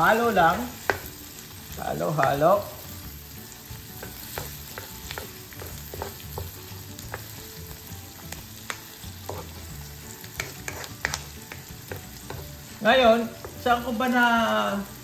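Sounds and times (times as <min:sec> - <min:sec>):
onions sizzling in oil: 0:00.0 - 0:15.0
utensil scraping pan: 0:10.4 - 0:12.5.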